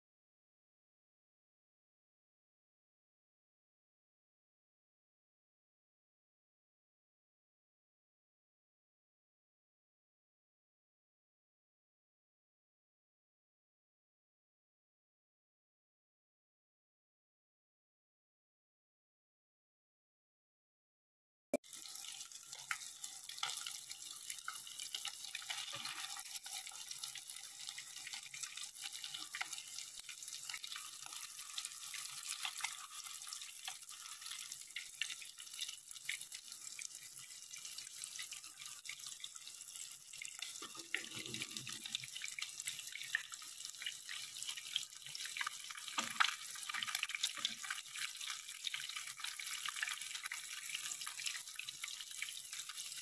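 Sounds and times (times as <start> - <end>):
food frying in hot oil: 21.6 - 53.0.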